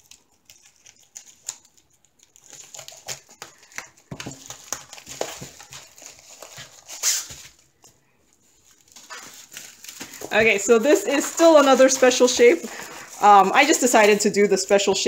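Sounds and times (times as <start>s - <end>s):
plastic packaging crinkling: 0.0s - 15.0s.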